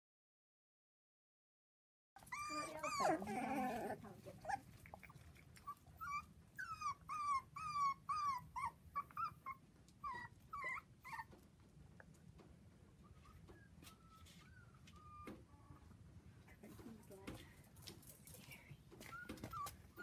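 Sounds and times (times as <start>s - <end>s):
puppy whimpering: 2.2s - 11.4s, 13.0s - 15.6s, 19.0s - 20.0s.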